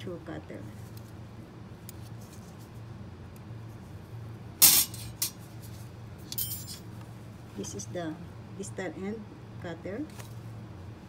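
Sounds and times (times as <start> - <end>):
metal tool clattering: 4.6 - 5.4, 6.3 - 6.8
light metallic jingle: 6.3 - 6.8.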